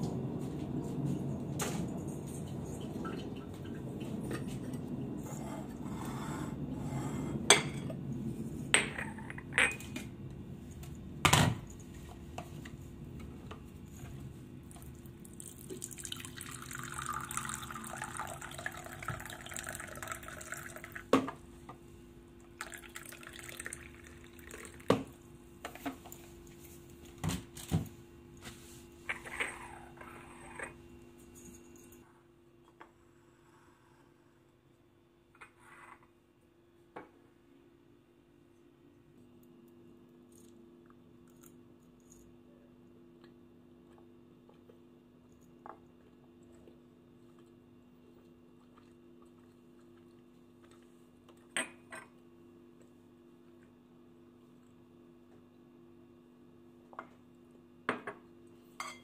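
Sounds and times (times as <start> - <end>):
tea pouring into a mug: 14.7 - 21.1, 22.6 - 25.2.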